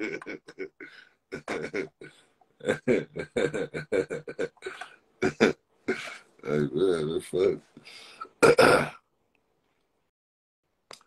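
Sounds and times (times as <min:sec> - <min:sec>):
man laughing hard: 0:00.0 - 0:06.2.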